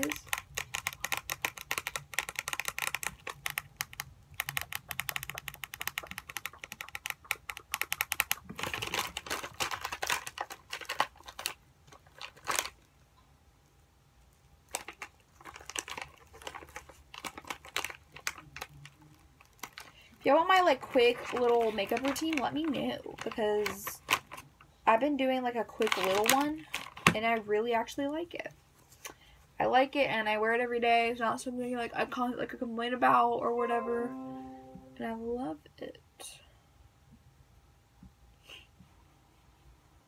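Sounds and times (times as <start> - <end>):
plastic pack crinkling: 0.0 - 12.9, 14.6 - 24.6, 25.7 - 27.4.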